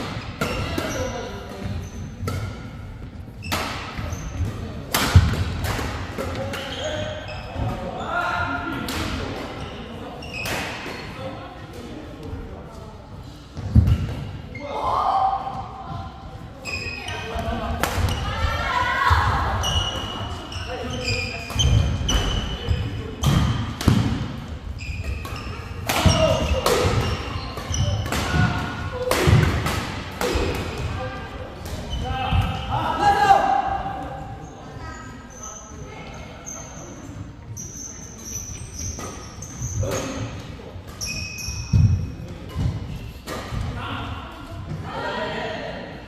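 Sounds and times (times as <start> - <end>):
sports shoes squeaking: 0.5 - 2.5, 3.4 - 4.5, 6.4 - 8.2, 9.6 - 11.0, 16.6 - 18.8, 19.6 - 23.7, 24.6 - 28.1, 34.4 - 43.3.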